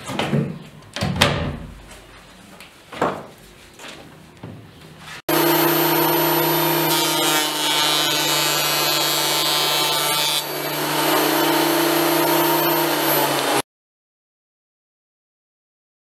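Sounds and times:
high-pitched whine of wood planing: 0:05.3 - 0:13.6
thickness planer running: 0:05.3 - 0:13.6.

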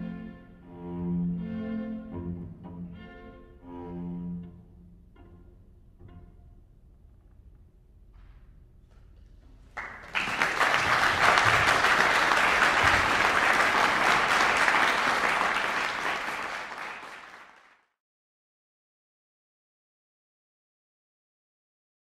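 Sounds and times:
audience applauding: 0:09.7 - 0:17.9.

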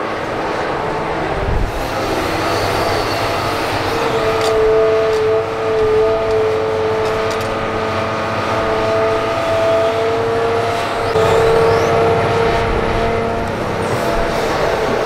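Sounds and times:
excavator engine running: 0:00.0 - 0:15.0
high-pitched whine: 0:01.5 - 0:05.2, 0:09.6 - 0:15.0.

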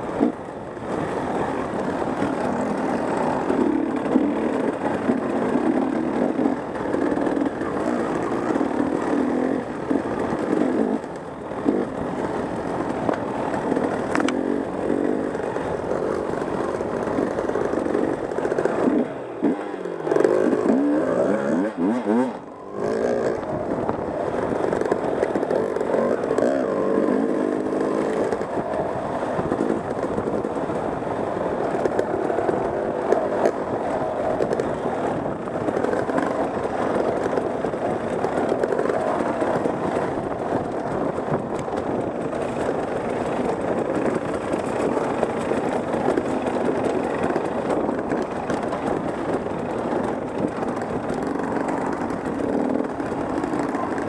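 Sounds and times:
dirt bike engine revving: 0:18.8 - 0:23.5, 0:25.5 - 0:28.4.

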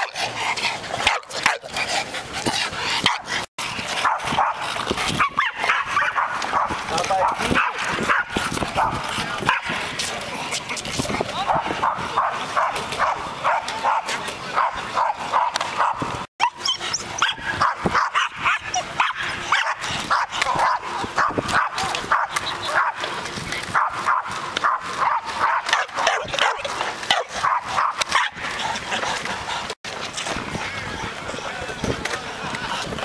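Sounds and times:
dog barking: 0:04.0 - 0:04.6, 0:05.2 - 0:09.7, 0:11.5 - 0:23.0, 0:23.7 - 0:28.4.

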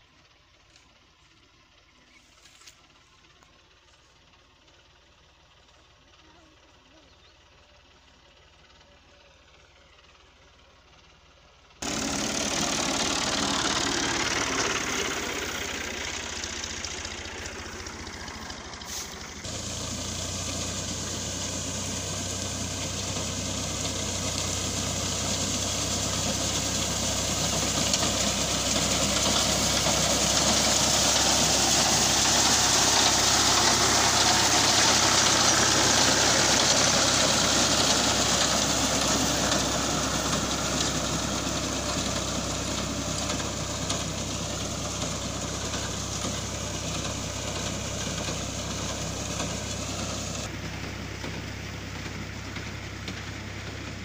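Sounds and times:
tractor diesel engine running: 0:00.0 - 0:54.0
reaper cutting wheat: 0:17.4 - 0:50.4.

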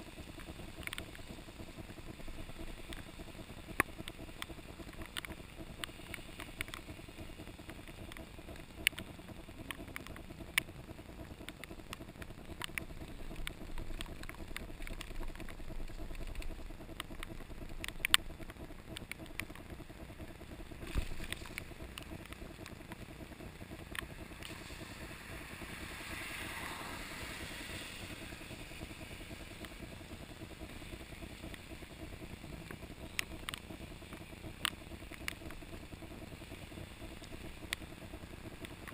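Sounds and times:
low rumble of bike ride: 0:00.0 - 0:38.9
sharp clicks and rattles: 0:00.3 - 0:38.9
hiss: 0:24.1 - 0:38.8.

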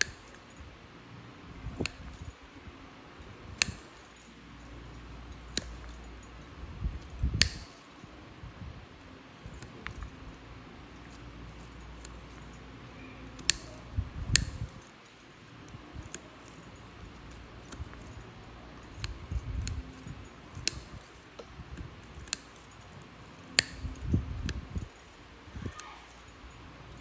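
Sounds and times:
nail nippers snapping through nail: 0:01.8 - 0:02.3, 0:03.5 - 0:04.2, 0:05.4 - 0:06.1, 0:07.0 - 0:07.8, 0:13.4 - 0:14.9, 0:18.8 - 0:25.0.

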